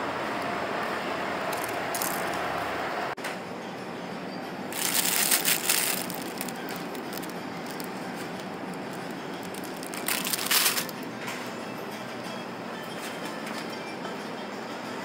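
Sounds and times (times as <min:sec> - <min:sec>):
steady background hum: 0:00.0 - 0:15.0
plastic bag crinkling: 0:04.8 - 0:11.0.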